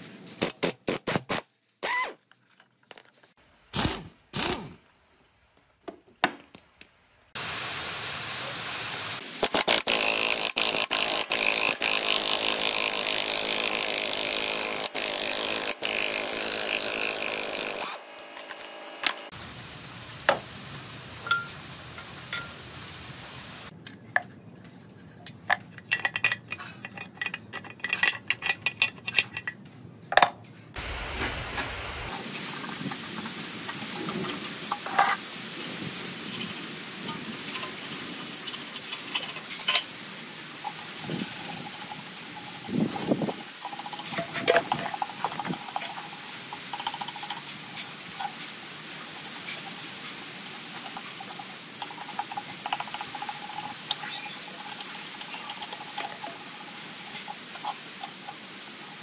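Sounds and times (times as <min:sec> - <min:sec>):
impact wrench bursts: 0:03.8 - 0:04.8, 0:09.3 - 0:19.2
power tool running: 0:09.4 - 0:19.3
metal parts clicking and knocking: 0:25.2 - 0:30.4, 0:41.4 - 0:47.5.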